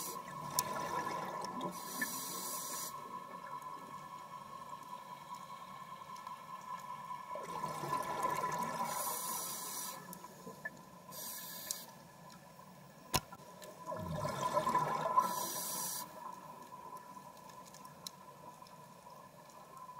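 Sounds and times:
scuba exhaled bubbles rushing: 0:00.3 - 0:01.8, 0:07.4 - 0:09.1, 0:13.9 - 0:15.6.

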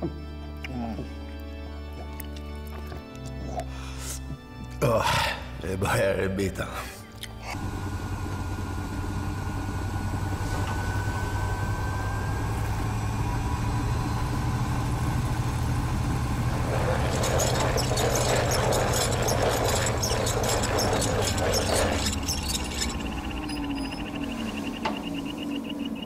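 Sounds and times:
low rumbling drone: 0:07.5 - 0:26.0
faint rising tone: 0:09.2 - 0:26.0.

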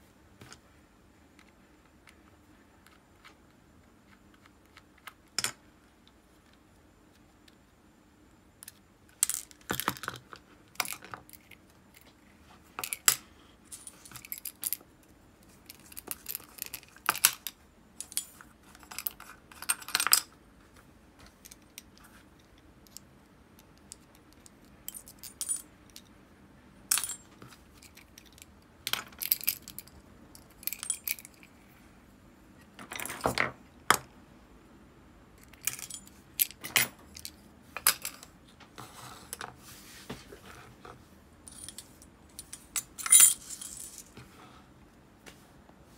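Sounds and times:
small metal parts clinking: 0:12.8 - 0:14.8, 0:15.6 - 0:20.3, 0:23.8 - 0:26.1, 0:26.9 - 0:31.6, 0:35.4 - 0:38.3, 0:41.5 - 0:44.2.

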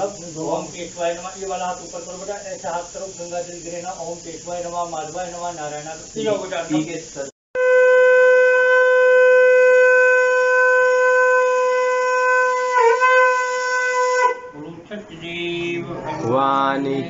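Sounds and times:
conch shell blown: 0:07.6 - 0:14.7.

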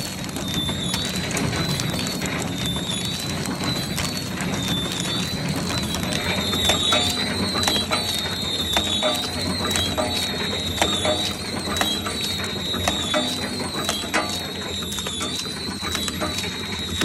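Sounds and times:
factory machines clattering: 0:00.0 - 0:17.0
high wavering tone: 0:05.9 - 0:17.0.

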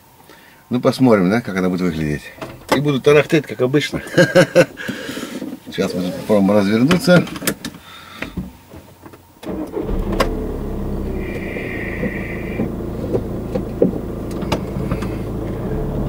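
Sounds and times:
car engine starting and idling: 0:09.4 - 0:16.0
high tone: 0:11.1 - 0:12.7.

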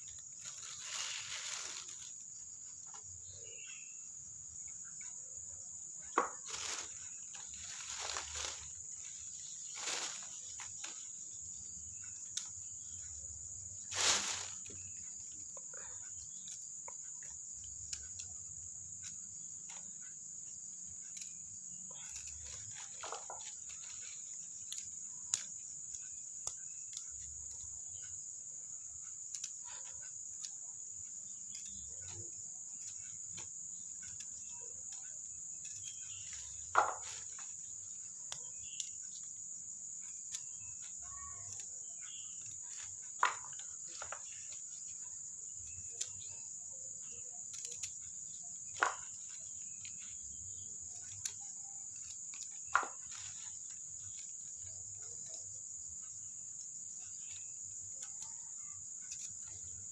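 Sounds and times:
insect trill: 0:00.0 - 0:59.9
plastic bag rustling: 0:00.1 - 0:02.3, 0:06.2 - 0:11.0, 0:13.8 - 0:14.8
knife clicking trimming roots: 0:47.4 - 0:48.0.

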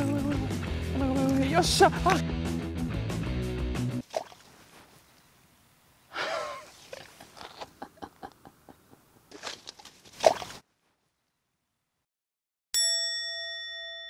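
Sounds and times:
man groaning: 0:01.4 - 0:02.3
sharp exhalations: 0:06.1 - 0:07.7.

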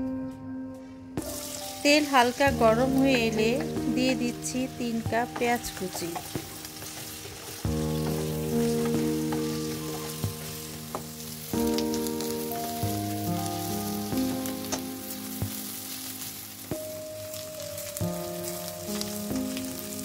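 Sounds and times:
background music of held chords: 0:00.0 - 0:20.0
onions sizzling in oil: 0:01.2 - 0:20.0.

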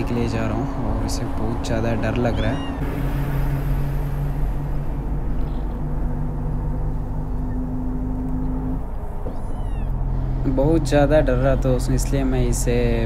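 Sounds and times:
bus engine drone: 0:00.0 - 0:13.0
kitten mewing: 0:02.2 - 0:02.8, 0:09.1 - 0:10.1.

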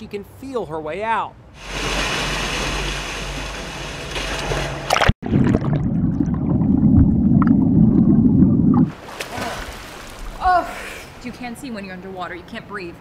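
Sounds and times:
muffled underwater churning and bubbling: 0:01.6 - 0:08.9
water rushing and splashing: 0:01.6 - 0:10.4.

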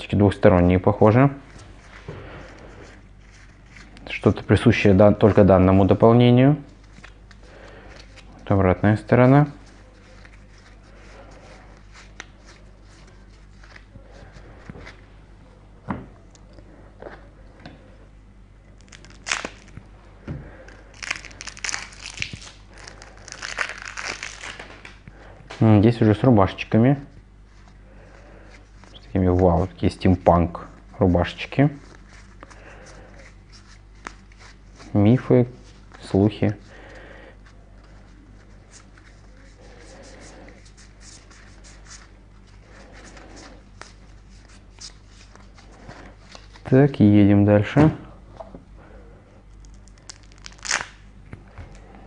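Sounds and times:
plastic wrapping crinkling and tearing: 0:18.7 - 0:19.9, 0:20.6 - 0:25.0, 0:49.5 - 0:51.0.

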